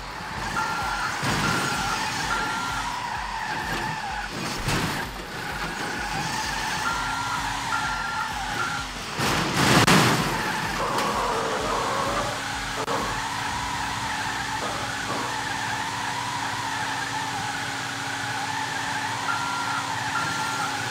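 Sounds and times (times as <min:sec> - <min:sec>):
loud rushing burst: 0:00.0 - 0:15.9
vehicle engine running: 0:00.0 - 0:20.9
short high beeps: 0:06.8 - 0:09.0.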